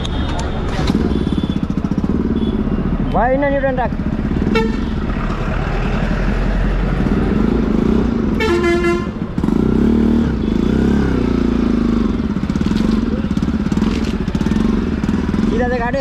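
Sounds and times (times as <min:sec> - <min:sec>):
vehicle horn honking: 0:00.0 - 0:03.2, 0:04.4 - 0:05.0, 0:08.4 - 0:09.2
motorcycle engine running: 0:00.8 - 0:16.0.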